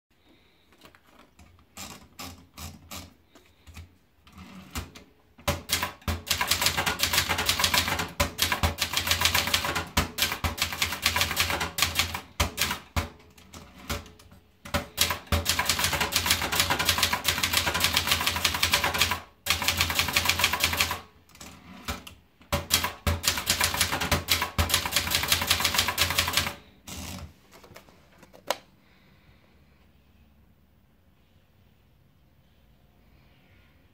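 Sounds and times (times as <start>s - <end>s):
typewriter keys clacking: 4.7s - 13.0s, 14.7s - 26.7s.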